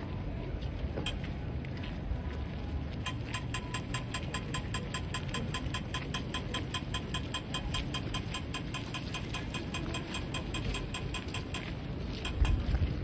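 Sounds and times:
low street rumble: 0.0s - 13.0s
crossing signal ticking rapidly: 1.0s - 1.2s, 3.0s - 13.0s.

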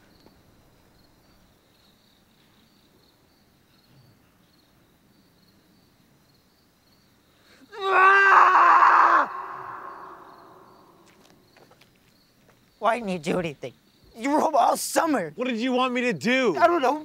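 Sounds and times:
faint crickets chirping: 0.0s - 17.0s
person screaming: 7.7s - 11.0s.

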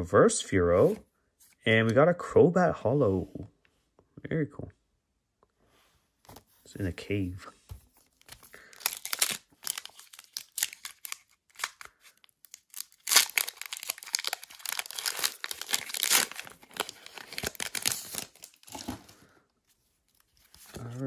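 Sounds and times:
foil wrapper crinkling: 8.3s - 18.9s
foil wrapper tearing: 8.5s - 18.9s.

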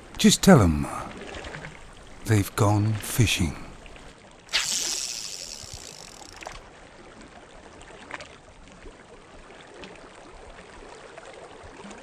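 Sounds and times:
water lapping softly: 0.0s - 12.0s.

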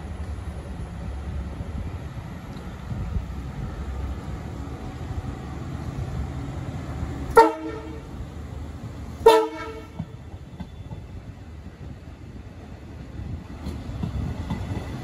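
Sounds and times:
train rolling past: 0.0s - 15.0s
train horn blasts: 7.3s - 8.1s, 9.2s - 10.1s.

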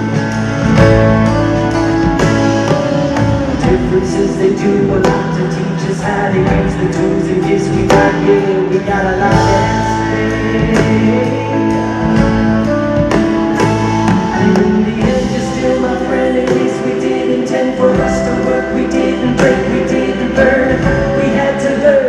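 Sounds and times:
live band playing: 0.0s - 22.0s
lead singer singing: 2.0s - 22.0s
backing vocals: 3.1s - 22.0s.

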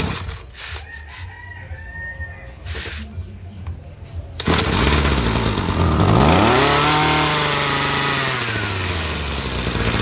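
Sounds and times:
brush cutter engine running: 0.0s - 0.4s, 4.4s - 10.0s.

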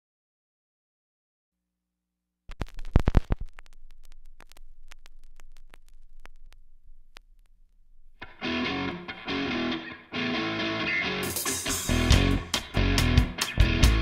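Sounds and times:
stylus clicks: 2.5s - 7.8s
vinyl surface noise with crackles: 2.5s - 8.4s.

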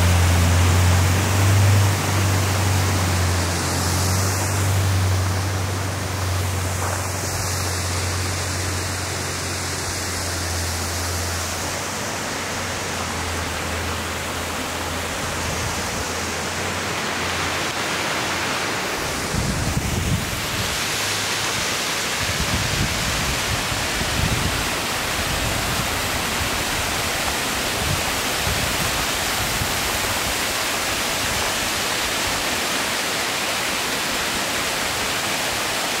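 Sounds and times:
waterfall rushing: 0.0s - 36.0s
wind rumble on microphone: 19.0s - 20.9s, 22.2s - 30.4s.

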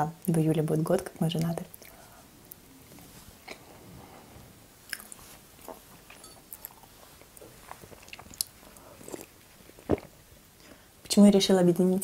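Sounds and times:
person chewing cake: 4.9s - 10.7s.

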